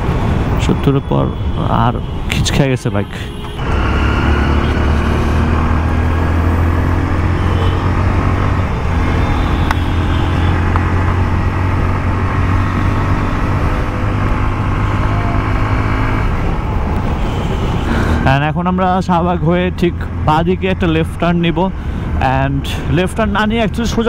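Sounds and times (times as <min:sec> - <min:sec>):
wind and road noise: 0:00.0 - 0:24.0
motorcycle engine cruising: 0:03.6 - 0:18.3.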